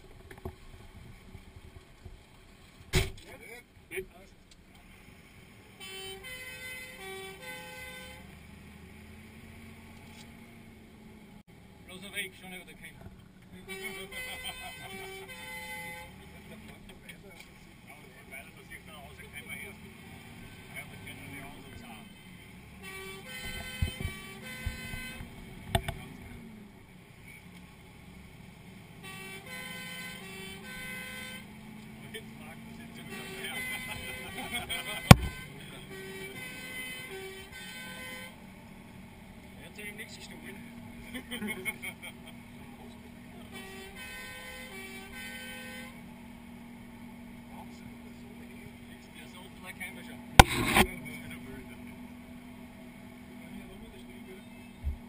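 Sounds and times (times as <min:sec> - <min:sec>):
engine humming: 0:00.0 - 0:55.0
two-tone siren: 0:05.8 - 0:08.3, 0:13.8 - 0:16.2, 0:22.8 - 0:25.2, 0:29.0 - 0:31.6, 0:32.9 - 0:38.4
sharp knock: 0:35.1 - 0:35.4, 0:50.4 - 0:50.9.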